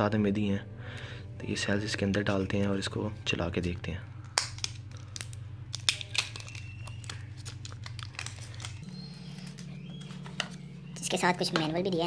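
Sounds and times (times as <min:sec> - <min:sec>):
bubble wrap and cardboard crinkling: 0:04.5 - 0:10.3.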